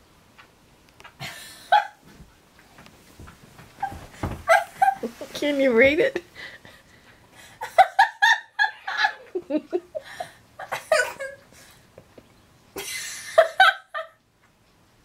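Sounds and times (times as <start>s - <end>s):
woman laughing: 1.2s - 2.0s, 3.8s - 6.3s, 7.6s - 11.4s, 12.8s - 14.2s.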